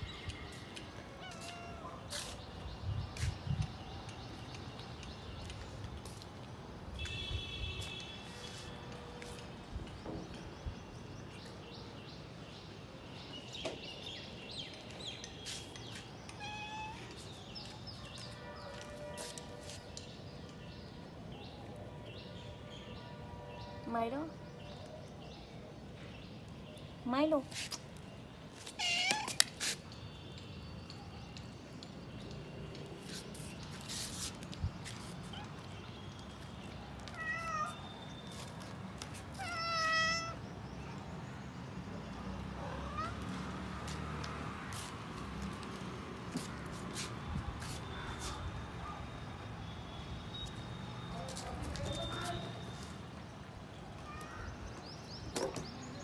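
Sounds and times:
cats meowing: 0:01.1 - 0:02.2, 0:16.3 - 0:17.2, 0:28.6 - 0:29.5, 0:37.0 - 0:37.8, 0:39.3 - 0:40.4, 0:42.7 - 0:43.4.

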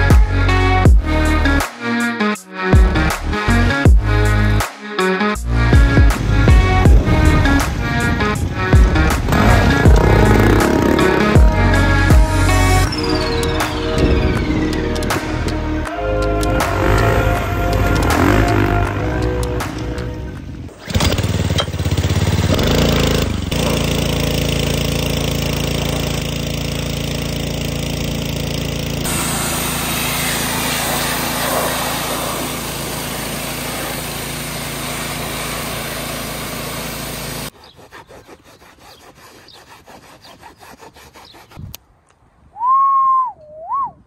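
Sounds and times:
rising-and-falling chirp: 0:12.6 - 0:15.5
small motor running with hiss: 0:22.7 - 0:37.5.

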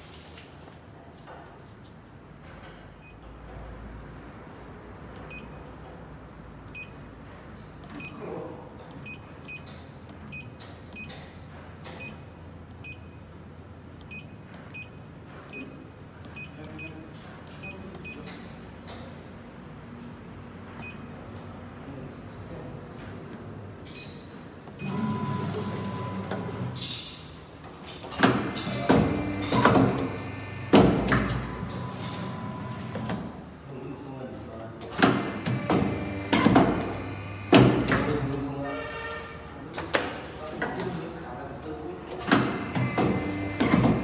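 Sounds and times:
short electronic key-press beeps: 0:05.3 - 0:05.6, 0:09.0 - 0:09.7, 0:10.3 - 0:11.2, 0:12.0 - 0:13.2, 0:14.1 - 0:18.3.

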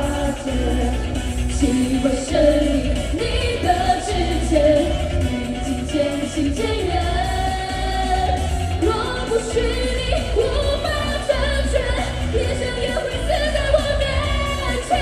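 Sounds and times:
amplified pop backing music: 0:00.0 - 0:15.0
female voices singing: 0:00.0 - 0:15.0.

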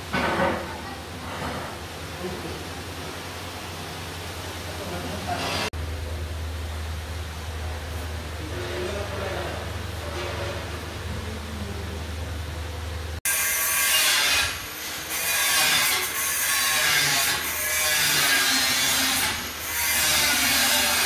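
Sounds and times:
low electric hum: 0:00.0 - 0:13.4
harsh grinding noise: 0:13.3 - 0:21.0.

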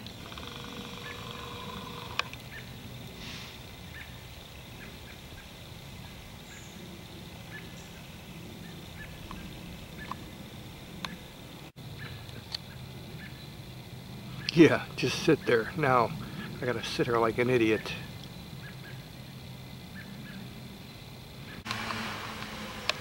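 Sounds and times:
steady hiss: 0:00.0 - 0:23.0.

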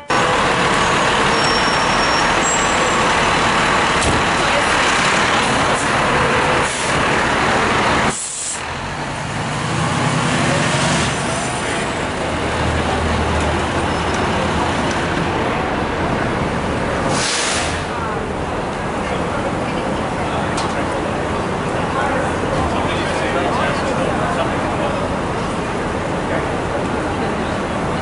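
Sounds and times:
diesel engine running: 0:00.0 - 0:28.0
air brake hisses: 0:08.1 - 0:08.6, 0:17.1 - 0:17.9.

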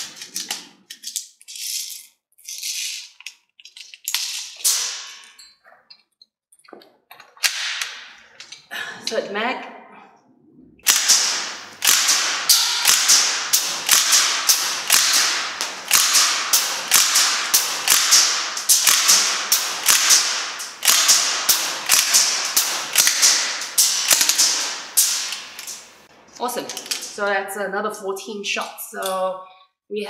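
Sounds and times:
airsoft gun single shots: 0:10.8 - 0:25.5.

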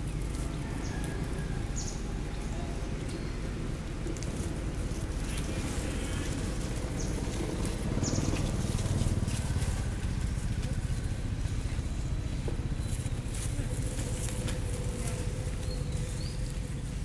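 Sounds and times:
steady low rumble: 0:02.0 - 0:17.0
monkeys scuffling over dry leaves: 0:04.1 - 0:12.1, 0:12.7 - 0:17.0.

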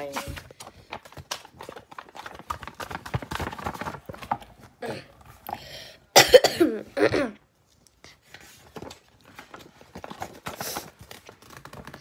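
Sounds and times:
child's voice: 0:00.0 - 0:00.4
paper page flipping: 0:00.0 - 0:05.4, 0:07.6 - 0:12.0.

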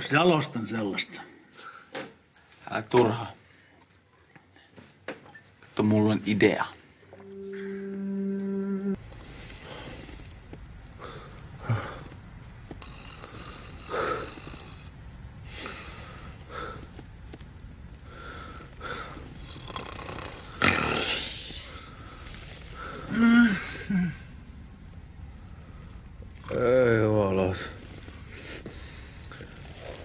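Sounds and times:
men snoring: 0:12.8 - 0:14.9, 0:18.8 - 0:22.0.

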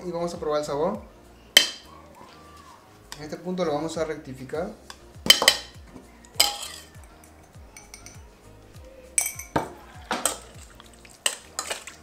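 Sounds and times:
soft background music: 0:00.0 - 0:12.0
spoon clinking against metal bowl: 0:06.4 - 0:08.3, 0:09.2 - 0:12.0.

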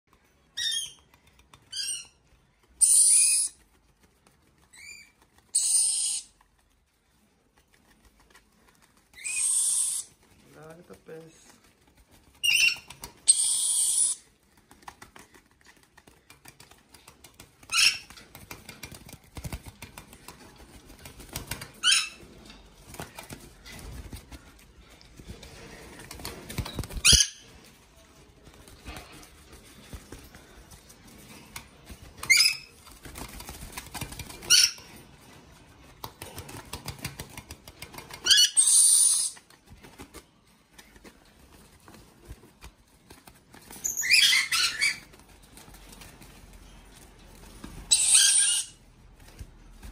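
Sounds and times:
wings flapping and rustling: 0:00.1 - 0:49.9
shrill bird squawks: 0:05.6 - 0:06.3, 0:12.5 - 0:14.2, 0:47.9 - 0:48.8.

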